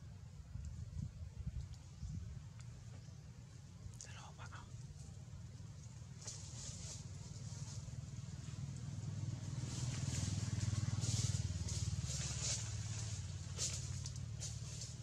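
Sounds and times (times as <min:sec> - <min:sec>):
rustling hiss: 0:03.8 - 0:15.0
vehicle engine passing: 0:05.7 - 0:15.0.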